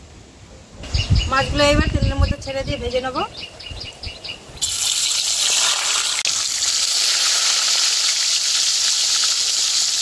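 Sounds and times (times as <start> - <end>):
fish frying in oil: 4.6 - 10.0.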